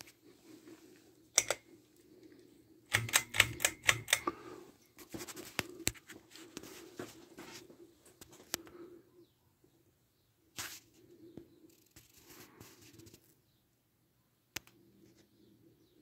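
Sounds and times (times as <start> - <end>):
sharp clicks and taps: 1.4 - 1.6, 2.9 - 4.4.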